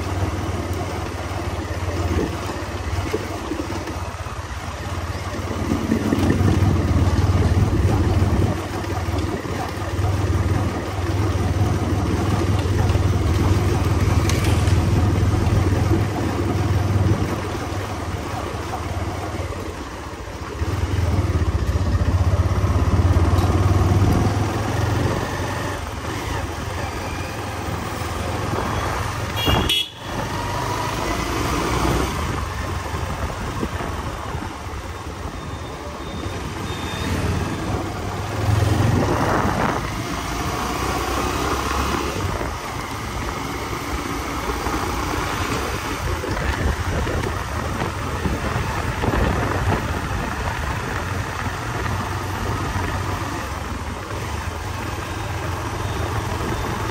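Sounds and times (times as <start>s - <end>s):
motorcycle engine revving: 20.4s - 34.7s, 36.3s - 56.9s.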